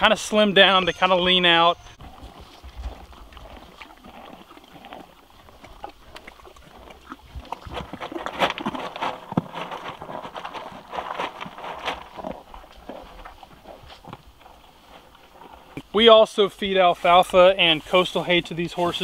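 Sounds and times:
horse crunching feed pellets: 0.0s - 15.9s
rustling against plastic tub: 7.5s - 15.9s.

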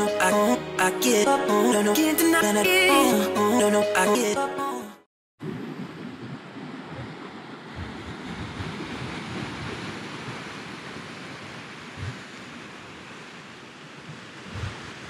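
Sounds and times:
wind buffeting microphone: 5.4s - 12.6s, 14.0s - 15.0s
surf washing over rocks: 5.4s - 15.0s.

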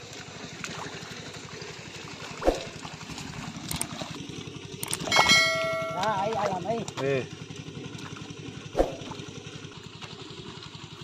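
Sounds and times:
mud and water squelching: 0.0s - 9.4s
low motor hum: 0.0s - 11.0s
held high tone: 5.1s - 6.4s.

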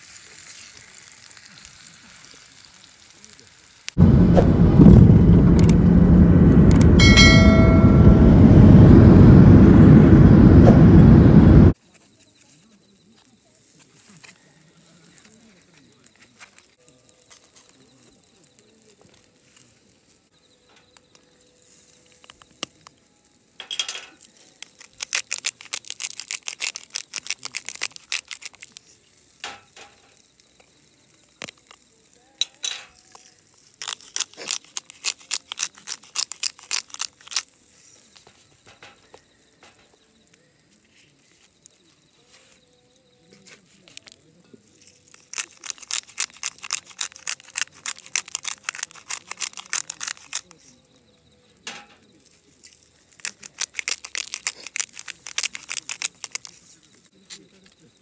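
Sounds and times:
pepper grinder rapid clicking: 24.6s - 28.7s, 33.8s - 37.5s, 45.1s - 50.5s, 53.2s - 56.6s.

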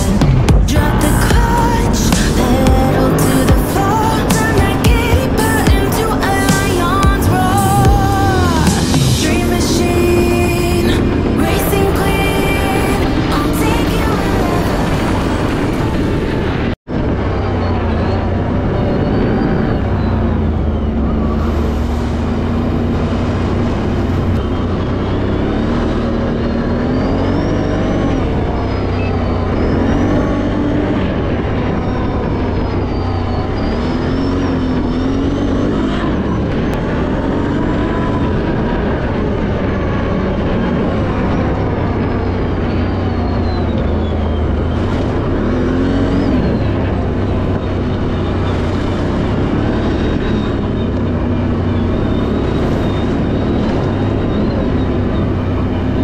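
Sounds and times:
vehicle engine revving: 0.0s - 56.0s.

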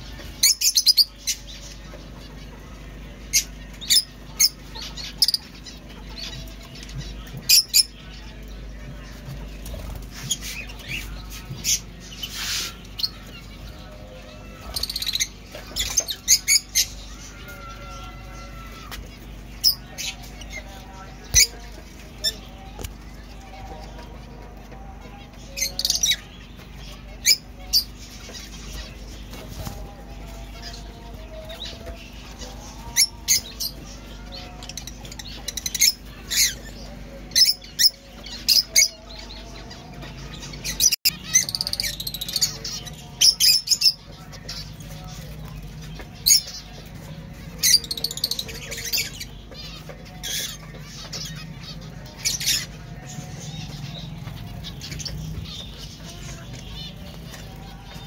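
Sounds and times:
zebra finches chattering: 0.0s - 58.0s
lovebirds shrill calls: 0.1s - 2.0s, 3.2s - 8.3s, 9.6s - 21.6s.

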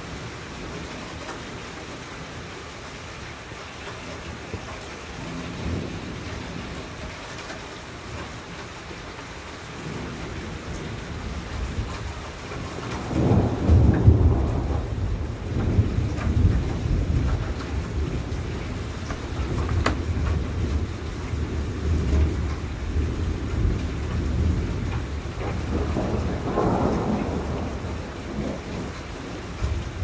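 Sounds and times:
steady rain: 0.0s - 30.0s
thunder rumbling: 4.5s - 7.0s, 9.8s - 30.0s.

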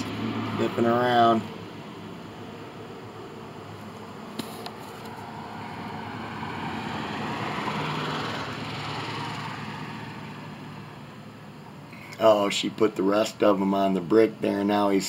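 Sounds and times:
car passing by: 0.0s - 3.4s, 4.0s - 11.2s.

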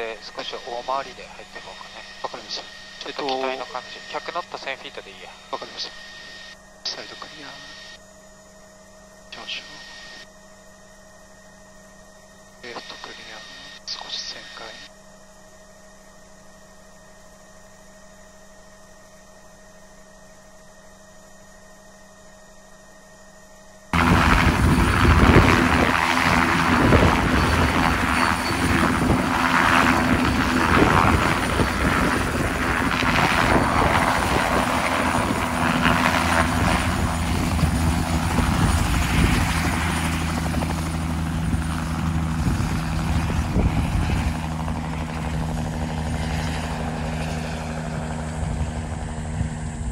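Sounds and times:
helicopter rotor beating: 0.0s - 7.9s, 24.0s - 49.9s
faint cockpit hum: 0.0s - 49.9s
turbine engine whine: 0.0s - 49.9s.

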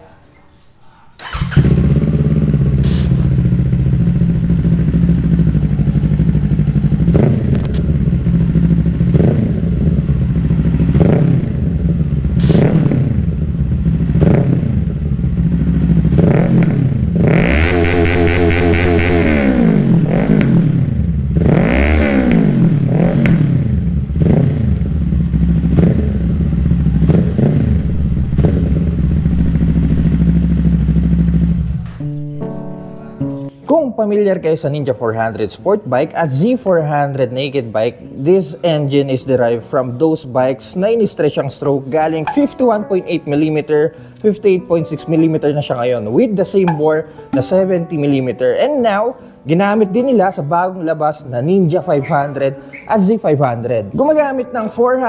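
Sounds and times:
motorcycle engine idling and revving: 1.2s - 32.0s.

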